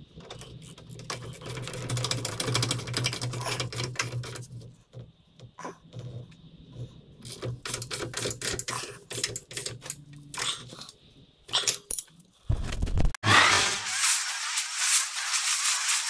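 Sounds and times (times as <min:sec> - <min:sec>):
metallic clatter of hand tools: 0:00.2 - 0:04.7.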